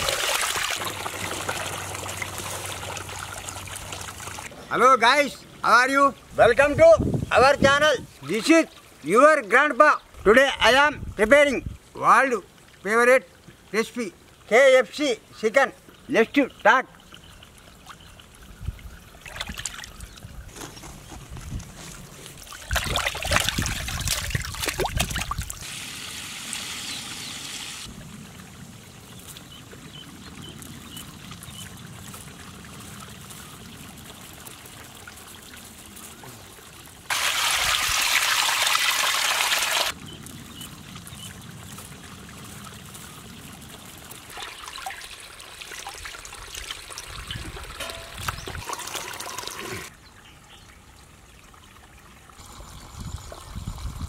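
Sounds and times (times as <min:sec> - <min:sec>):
rush of draining water: 0:00.0 - 0:04.5, 0:22.4 - 0:26.7, 0:36.5 - 0:40.0, 0:40.8 - 0:49.9
water splashing in a steel pot: 0:00.0 - 0:04.5, 0:17.0 - 0:20.3, 0:22.4 - 0:26.6, 0:30.8 - 0:49.9.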